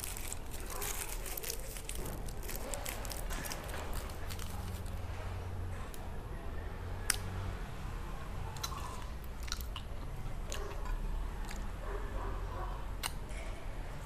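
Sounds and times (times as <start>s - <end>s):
crunching fried onion rings: 0.0s - 5.0s, 8.5s - 11.8s.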